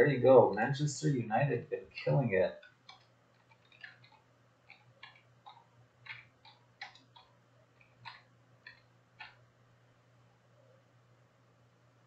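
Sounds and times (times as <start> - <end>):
faint clicks and ticks: 2.5 - 9.5.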